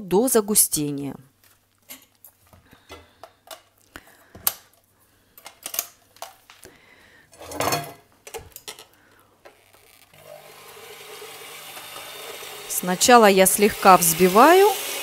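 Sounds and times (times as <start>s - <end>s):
kitchen utensils clattering: 7.4s - 8.9s
electric hand mixer humming: 10.1s - 15.0s.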